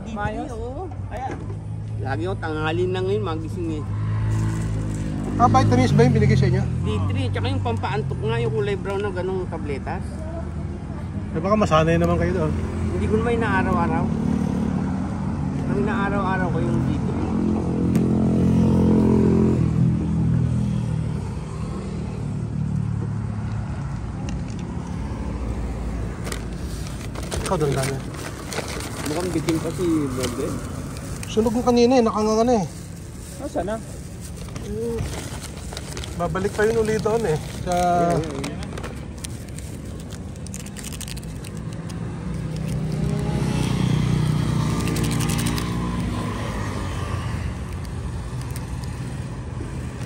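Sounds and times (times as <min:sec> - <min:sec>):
low rumble of traffic: 0:00.0 - 0:50.0
vehicle engine passing close by: 0:02.0 - 0:08.3, 0:10.7 - 0:35.5, 0:40.5 - 0:50.0
small motorcycle engine passing: 0:42.5 - 0:47.8.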